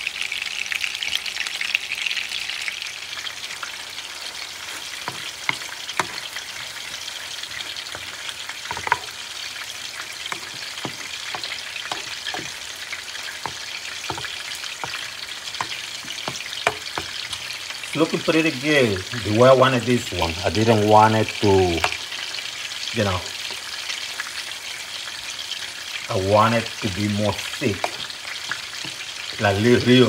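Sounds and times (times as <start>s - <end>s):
oil sizzling in a frying pan: 0.0s - 30.0s
wooden spoon stirring sauce: 4.2s - 18.0s, 21.4s - 22.4s, 25.6s - 30.0s.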